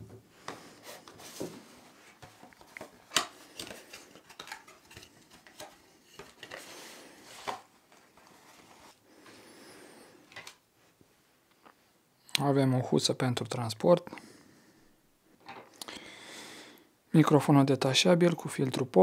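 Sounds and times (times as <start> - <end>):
packaging scraping and tapping: 0.4 - 8.3.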